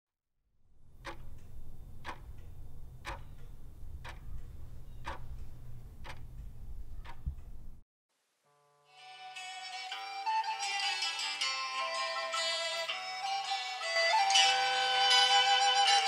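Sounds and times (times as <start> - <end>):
low steady hum: 0.6 - 7.8
clock ticking: 0.8 - 7.8.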